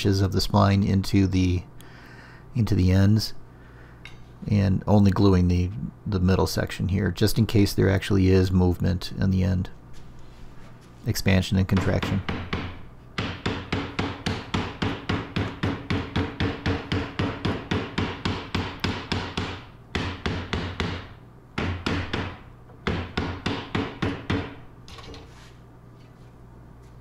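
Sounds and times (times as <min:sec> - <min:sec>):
mallet knocking on wood: 0:11.8 - 0:24.6.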